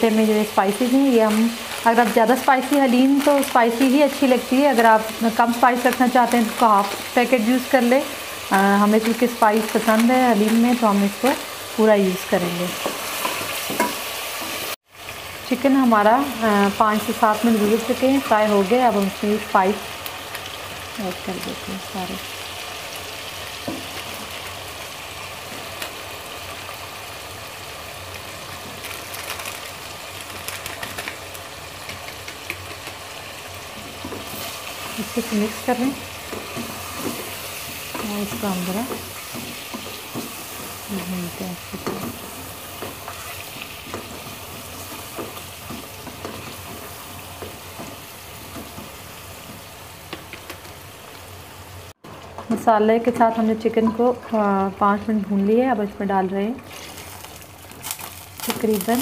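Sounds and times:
chicken frying in oil: 13.2 - 52.0, 56.6 - 59.0.

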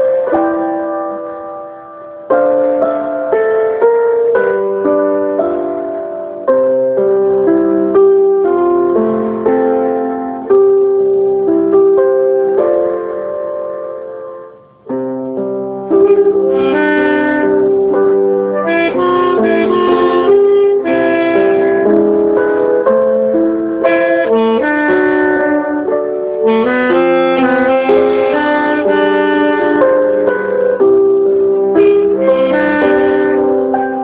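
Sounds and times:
piano notes and chords: 0.0 - 34.0
alto saxophone melody: 14.5 - 34.0.

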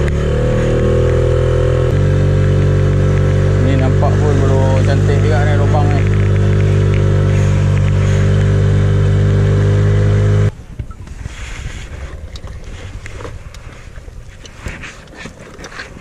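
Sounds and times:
outboard motor running: 0.0 - 10.5
hiss of water and wind: 10.5 - 16.0.

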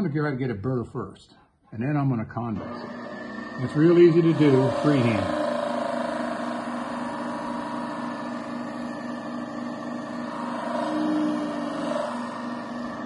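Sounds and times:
blade grinding on disk: 2.6 - 13.0
sharpening machine humming: 2.6 - 13.0.

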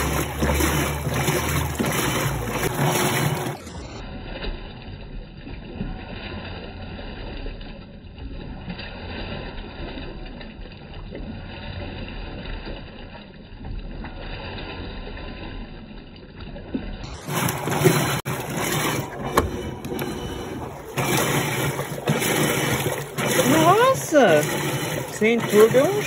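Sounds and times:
washing machine churning: 0.0 - 4.1, 16.9 - 26.0.

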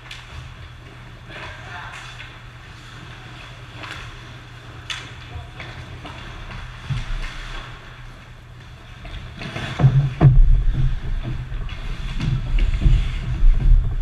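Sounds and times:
heavy thuds against boards: 9.8 - 11.6
low rumble: 9.8 - 14.0.

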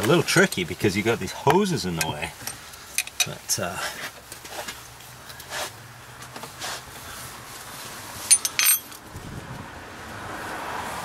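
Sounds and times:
metal tools clinking: 8.2 - 9.0.

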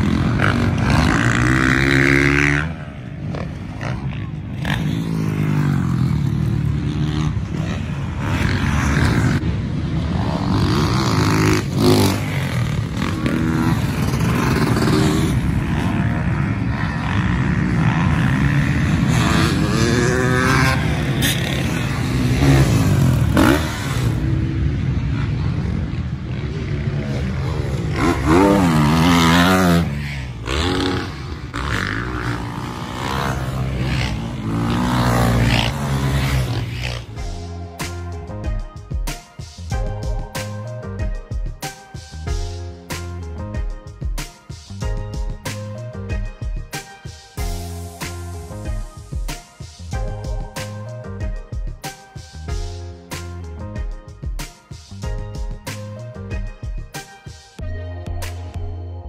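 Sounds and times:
dirt bike engines revving: 0.0 - 43.8.

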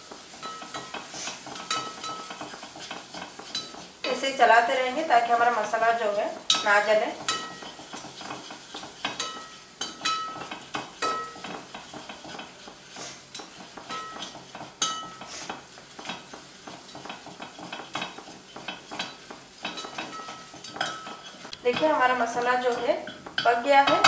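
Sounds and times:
low sizzle of frying: 0.0 - 24.0
spatula scraping pot: 0.1 - 24.0
spatula clinking against pot: 0.4 - 4.2, 6.5 - 12.6, 13.4 - 15.3, 16.0 - 21.8.

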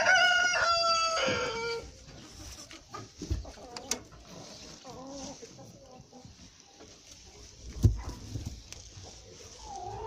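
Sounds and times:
rooster crowing: 0.0 - 1.8.

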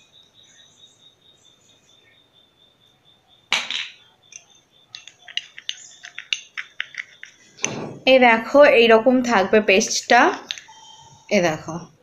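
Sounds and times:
spoon scraping glass bowl: 4.9 - 7.6, 10.3 - 11.3
loud knock: 7.7 - 8.0.

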